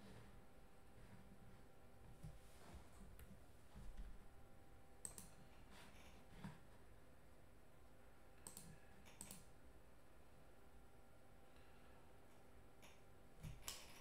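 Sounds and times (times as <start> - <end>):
faint short clicks: 5.0 - 5.4, 8.4 - 9.5.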